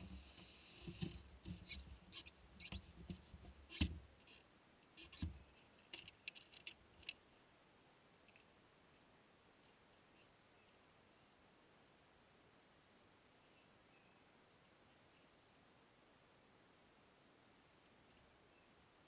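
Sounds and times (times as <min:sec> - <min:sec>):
faint clicks: 0:00.0 - 0:07.3.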